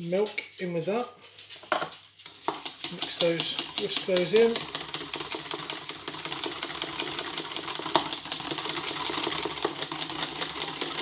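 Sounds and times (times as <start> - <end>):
whisk rattling against bowl: 1.7 - 11.0.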